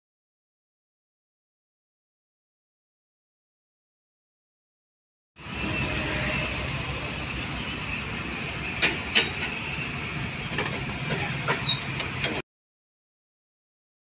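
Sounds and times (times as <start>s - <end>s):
workshop hiss and hum: 5.4s - 12.4s.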